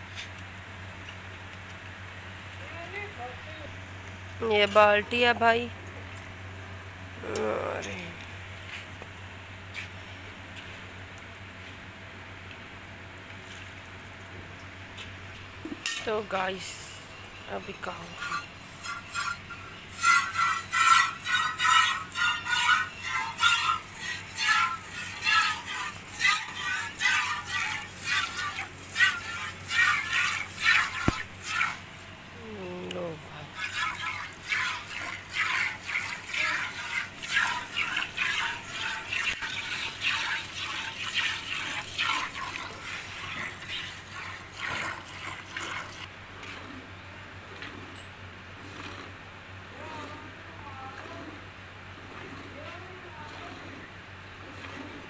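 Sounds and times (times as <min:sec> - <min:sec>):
milk squirting into metal pail: 0:20.0 - 0:31.9, 0:33.6 - 0:46.0.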